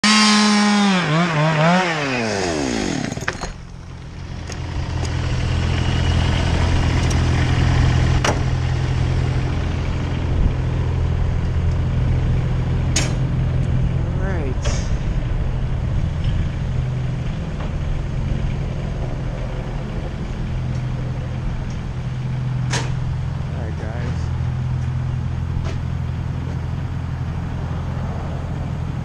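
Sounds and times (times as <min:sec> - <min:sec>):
chainsaw engine winding down: 0:00.0 - 0:03.5
low engine hum: 0:02.5 - 0:29.0.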